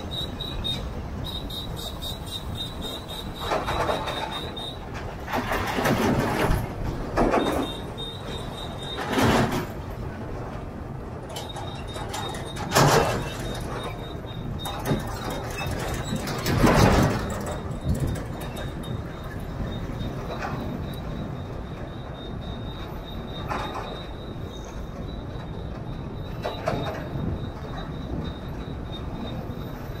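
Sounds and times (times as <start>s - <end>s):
highway traffic rumble: 0.0s - 30.0s.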